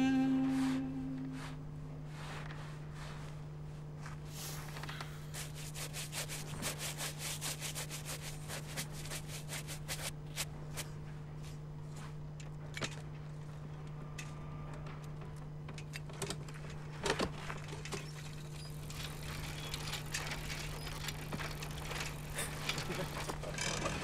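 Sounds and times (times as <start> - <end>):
steady low hum: 0.0 - 24.0
hand brushing leather shoe: 4.0 - 10.9.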